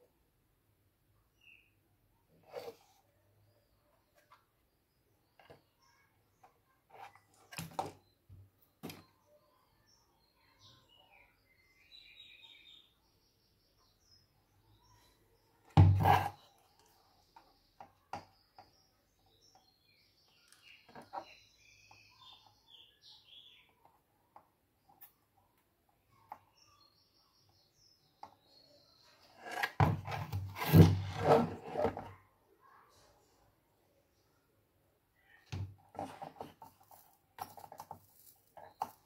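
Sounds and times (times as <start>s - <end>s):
faint bird chirps: 1.2s - 15.8s, 16.4s - 24.2s, 24.8s - 29.6s, 35.1s - 35.6s
knocking and rubbing: 15.8s - 16.4s, 29.4s - 32.1s, 35.6s - 39.0s.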